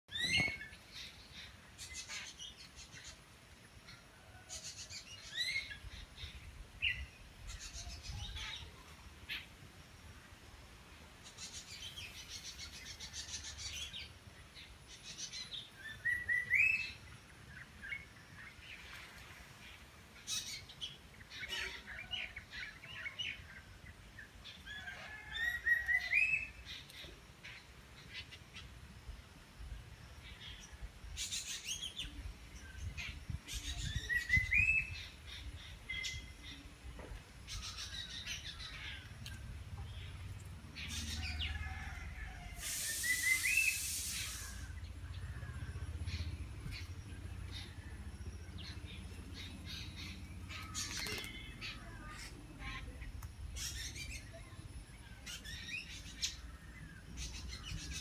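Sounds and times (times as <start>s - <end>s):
birds chirping and trilling: 0.1s - 58.0s
rising whistled bird call: 15.8s - 17.0s, 41.1s - 45.0s.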